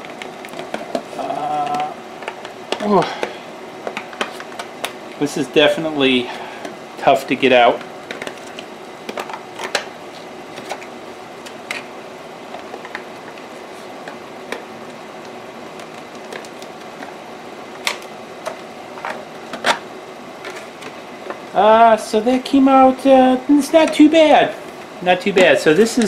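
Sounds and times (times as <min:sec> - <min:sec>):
steady background hum: 0:00.0 - 0:26.0
plastic snapping: 0:07.8 - 0:09.9, 0:17.8 - 0:19.8.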